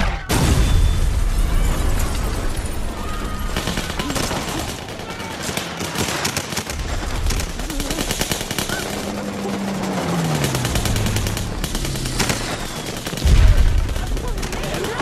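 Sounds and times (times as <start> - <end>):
rifle and machine-gun fire: 0.0 - 15.0
low hum: 6.8 - 14.4.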